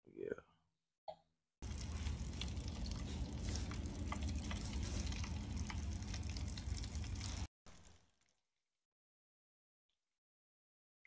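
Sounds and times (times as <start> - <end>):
oil pops and crackles: 1.6 - 8.0
fish deep-frying in oil: 1.6 - 8.2.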